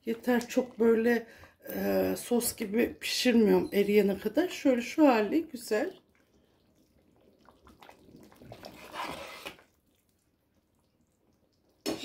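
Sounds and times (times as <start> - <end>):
ladle stirring tomatoes in pot: 2.1 - 12.0.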